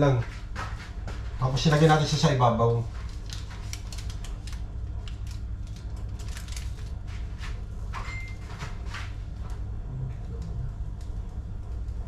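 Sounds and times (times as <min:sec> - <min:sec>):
steady low hum: 0:00.0 - 0:12.0
foil crinkling and rustling: 0:03.0 - 0:07.6.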